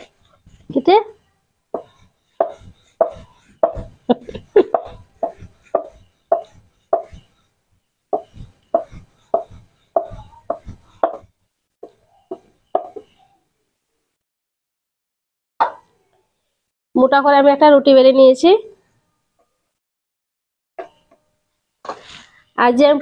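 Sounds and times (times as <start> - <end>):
rolling pin knocking on wooden board: 1.7 - 4.0, 4.7 - 7.3, 8.1 - 13.2.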